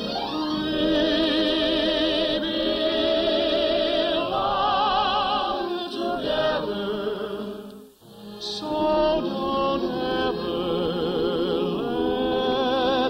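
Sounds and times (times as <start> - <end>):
orchestra playing slow waltz: 0.0 - 3.7.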